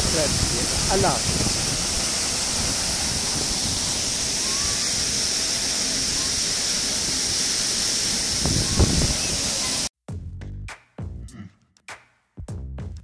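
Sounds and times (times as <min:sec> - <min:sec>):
waterfall pouring onto rocks: 0:00.0 - 0:09.9.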